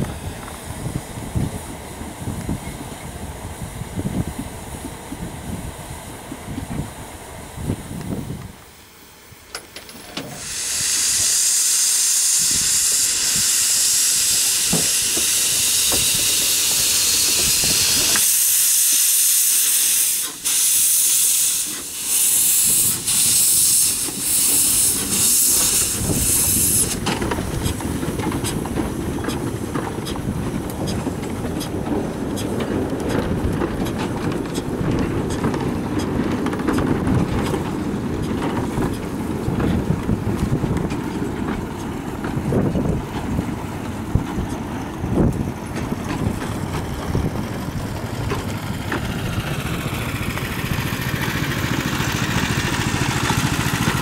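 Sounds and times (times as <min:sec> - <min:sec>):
locomotive rhythmic puffs: 0:00.0 - 0:54.0
steam locomotive hissing: 0:00.0 - 0:54.0
wheels clicking on rails: 0:09.4 - 0:54.0
wagons rolling rumble: 0:26.0 - 0:54.0.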